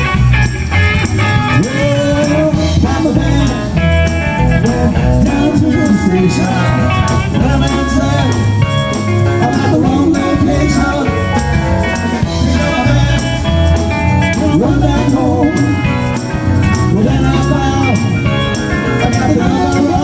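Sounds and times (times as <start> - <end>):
electric guitar: 0.0 - 20.0
man singing into microphone: 1.4 - 13.6, 14.2 - 20.0.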